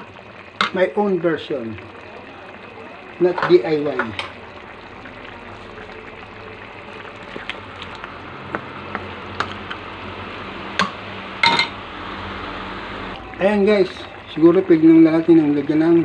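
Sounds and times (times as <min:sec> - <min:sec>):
stew bubbling in a wok: 0:00.0 - 0:16.0.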